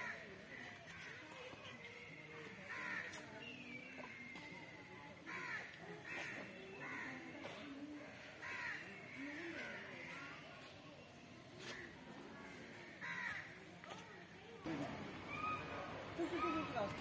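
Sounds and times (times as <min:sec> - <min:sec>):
crows cawing: 0:05.3 - 0:07.2, 0:08.2 - 0:09.3, 0:12.8 - 0:13.5.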